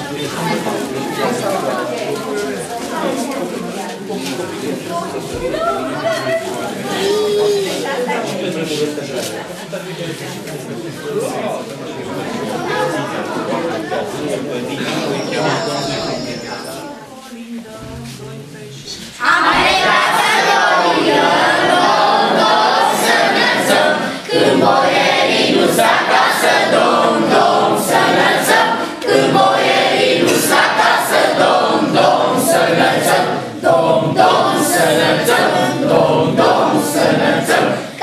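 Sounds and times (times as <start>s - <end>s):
children singing a carol: 19.1s - 38.0s.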